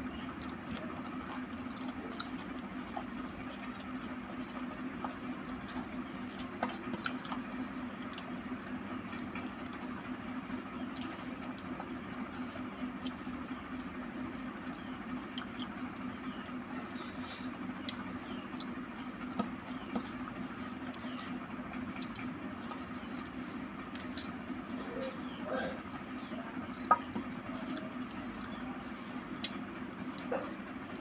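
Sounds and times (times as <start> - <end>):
steady low hum: 0.0 - 31.0
fingers mashing food on metal plate: 0.4 - 8.3, 17.8 - 24.4, 25.0 - 28.6.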